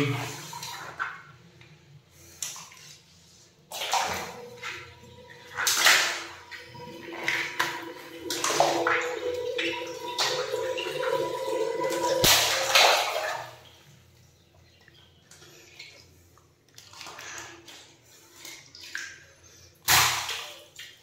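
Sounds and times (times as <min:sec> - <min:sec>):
water rushing and splashing: 0:03.7 - 0:13.5.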